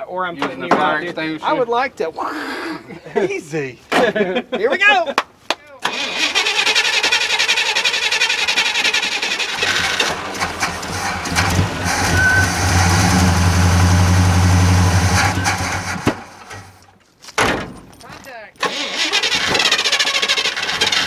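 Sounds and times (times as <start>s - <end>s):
engine cranking and running: 5.8s - 16.8s, 18.6s - 21.0s.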